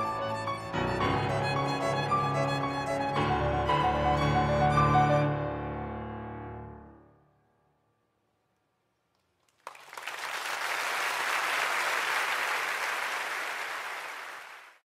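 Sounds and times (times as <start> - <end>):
audience applause: 9.4 - 14.8.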